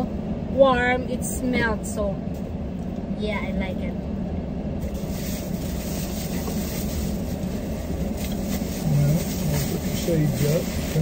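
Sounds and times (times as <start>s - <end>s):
car engine rumble from inside: 0.0s - 11.0s
plastic bag rustling: 4.8s - 11.0s.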